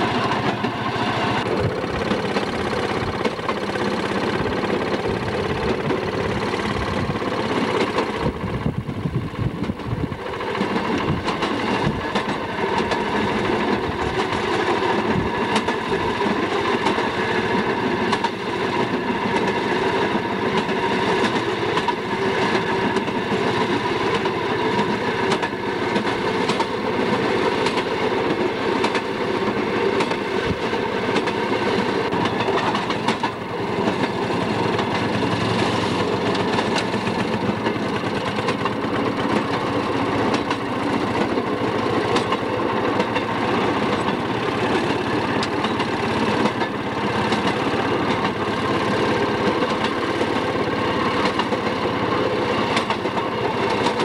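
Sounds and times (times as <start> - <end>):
wheels clicking over rail joints: 0.0 - 54.0.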